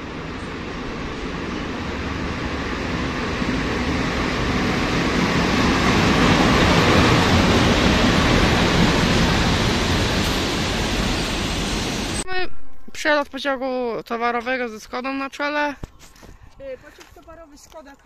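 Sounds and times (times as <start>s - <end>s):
train wheels rumbling on rails: 0.0s - 12.2s.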